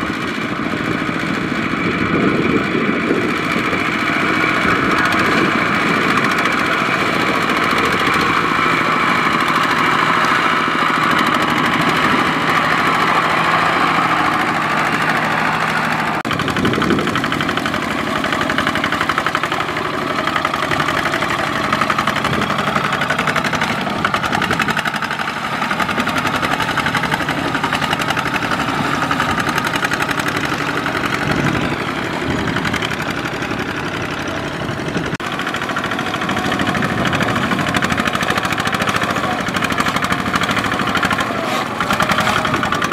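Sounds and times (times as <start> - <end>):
diesel tractor engine chugging: 0.0 - 42.9.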